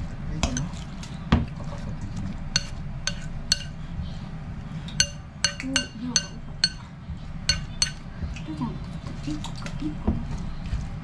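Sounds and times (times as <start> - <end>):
soft stirring of batter: 0.0 - 11.0
spoon clinking on glass bowl: 2.6 - 3.7, 4.9 - 6.9, 7.5 - 8.0.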